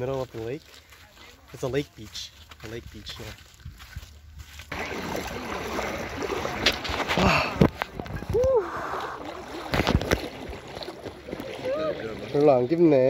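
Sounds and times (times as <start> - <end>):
person wading through water: 0.0 - 13.0
wind noise: 6.2 - 9.0.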